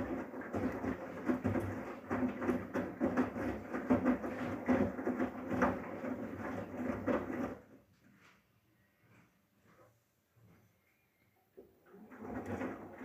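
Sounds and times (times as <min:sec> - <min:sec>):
washing machine motor hum: 0:00.0 - 0:07.7, 0:11.8 - 0:13.0
laundry tumbling in washing machine: 0:00.0 - 0:07.9, 0:11.8 - 0:13.0.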